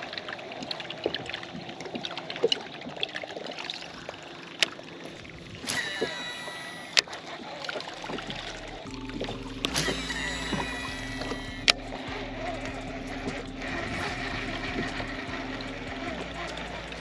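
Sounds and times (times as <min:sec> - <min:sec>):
water splashes around a boat: 0:00.0 - 0:11.4
fishing reel spool whirring: 0:00.0 - 0:17.0
fishing reel click: 0:05.7 - 0:07.1.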